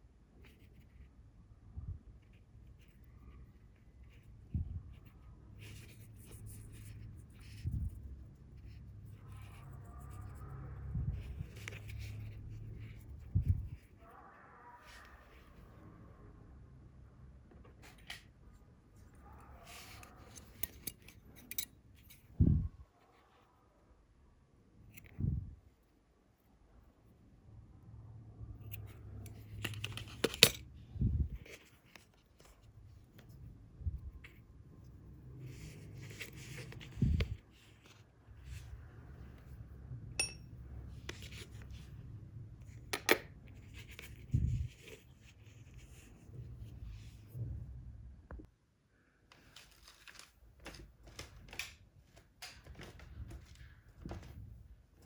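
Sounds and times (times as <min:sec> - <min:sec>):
low steady rumble: 0:04.2 - 0:14.0.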